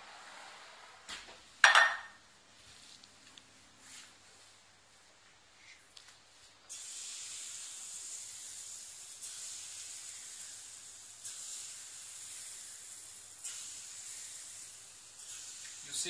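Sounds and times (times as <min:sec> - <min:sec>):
batter sizzling in hot fat: 0:06.7 - 0:16.0.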